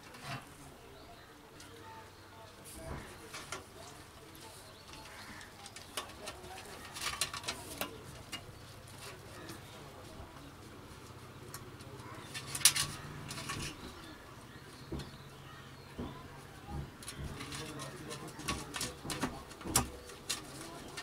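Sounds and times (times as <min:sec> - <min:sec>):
plastic terminal clicking and scraping: 0:04.8 - 0:09.6, 0:16.9 - 0:21.0.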